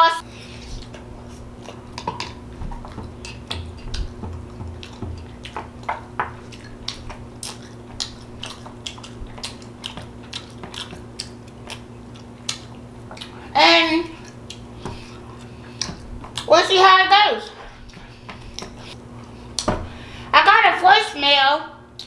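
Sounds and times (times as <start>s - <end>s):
low electrical hum: 0.0s - 22.0s
chewing and lip smacking: 0.7s - 1.8s, 4.8s - 5.6s, 6.4s - 13.5s, 14.1s - 16.5s.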